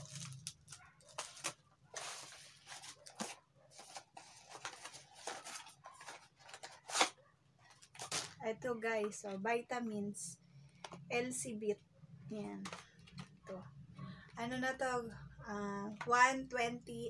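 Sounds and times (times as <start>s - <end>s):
sharp plastic crackle: 0.0s - 3.4s
plastic packaging rustling: 0.0s - 8.5s.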